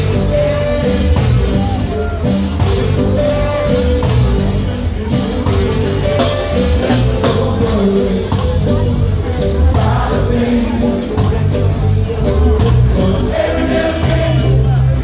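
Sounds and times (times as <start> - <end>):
live reggae band: 0.0 - 15.0.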